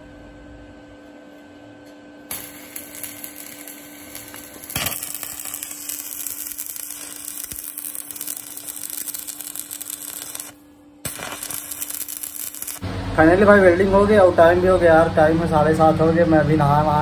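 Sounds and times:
welding arc crackling: 2.3s - 12.9s.

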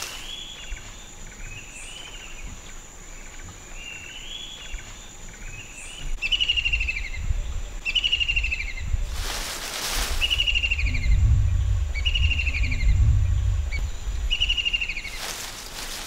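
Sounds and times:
insect drone: 0.0s - 16.0s
low rumble: 8.7s - 15.9s
rustling burst: 9.1s - 10.5s, 15.0s - 16.0s.

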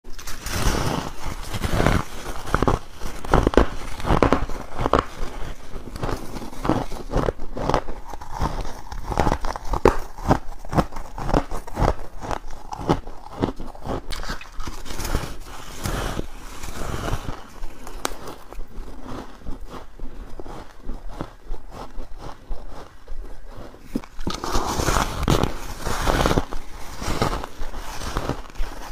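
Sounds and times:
chewing crunchy frost: 0.1s - 28.9s.

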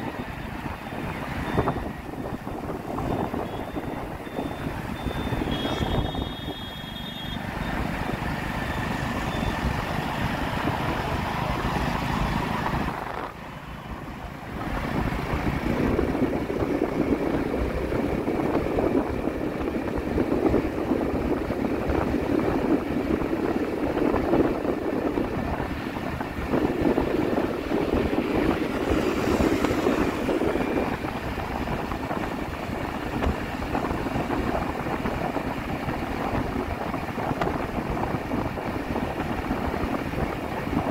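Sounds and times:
vehicle engine and road noise: 0.0s - 40.9s
high beep: 3.1s - 7.4s.

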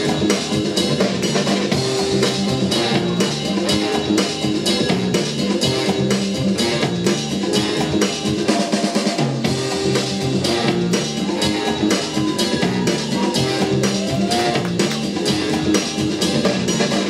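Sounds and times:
bass line: 0.0s - 17.0s
hip-hop drum beat: 0.0s - 17.0s.

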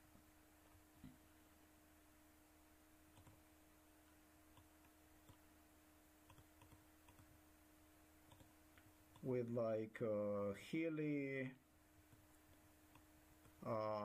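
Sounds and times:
faint steady hum: 0.0s - 14.0s
computer mouse clicks: 3.1s - 3.4s, 4.5s - 5.4s, 6.2s - 7.3s, 8.3s - 9.3s.

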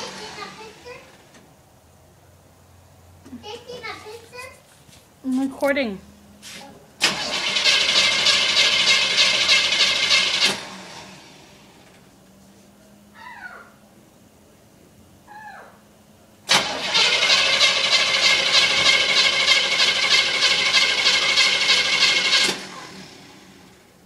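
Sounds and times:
engine cranking on starter: 0.0s - 1.4s, 7.0s - 12.0s, 16.5s - 23.8s.

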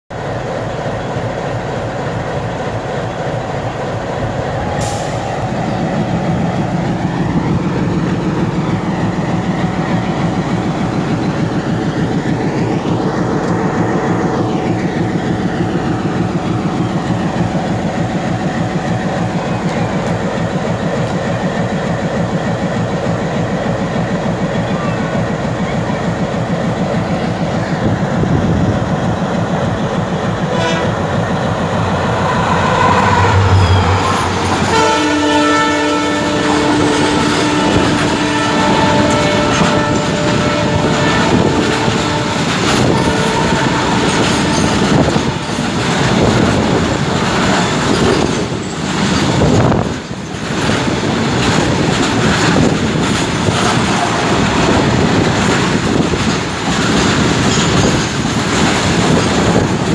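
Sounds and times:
train wheels clattering: 4.8s - 59.9s
train horn: 30.4s - 31.3s, 31.9s - 45.5s.

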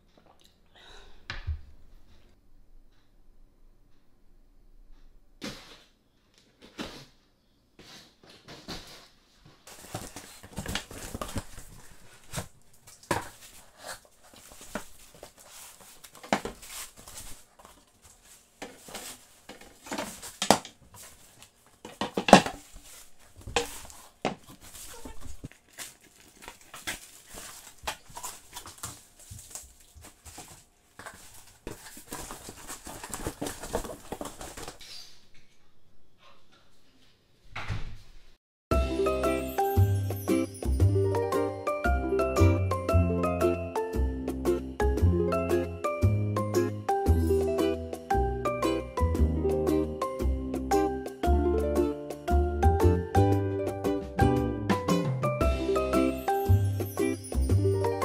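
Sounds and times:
cardboard rustling: 7.8s - 34.8s
plastic wrapping crinkling: 9.7s - 34.8s.

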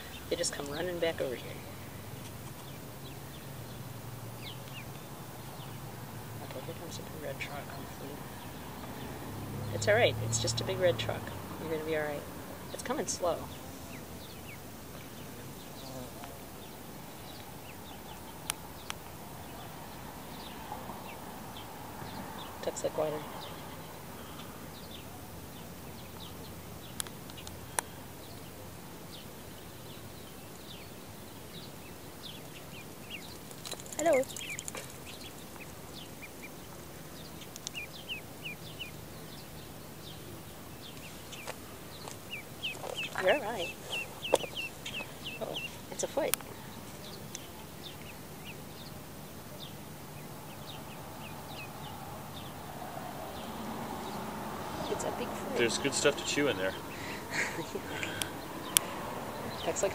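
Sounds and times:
ducklings peeping: 0.0s - 59.9s
sharp clicks: 33.5s - 35.7s, 37.4s - 37.8s.

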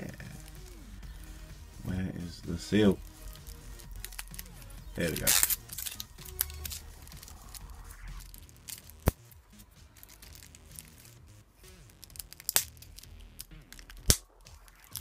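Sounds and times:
cellophane crinkling and crackling: 3.4s - 15.0s.

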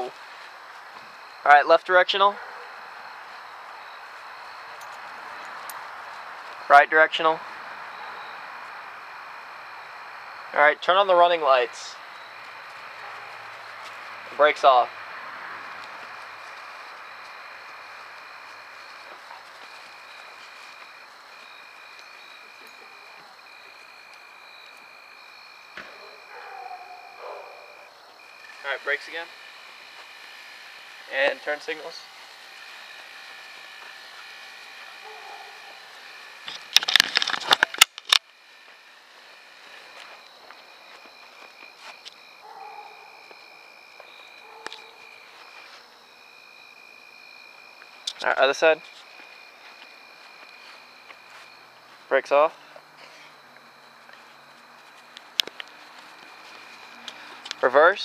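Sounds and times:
high-pitched insect trills: 0.0s - 58.0s
sharp clicks: 35.9s - 38.4s.

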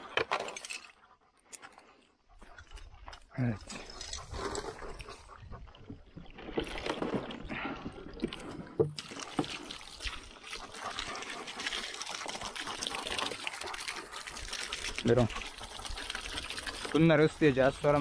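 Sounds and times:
water running and trickling: 7.5s - 18.0s.

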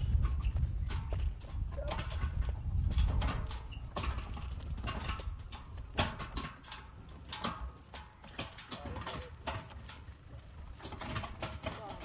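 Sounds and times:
trailer clattering over dirt road: 0.0s - 12.0s.

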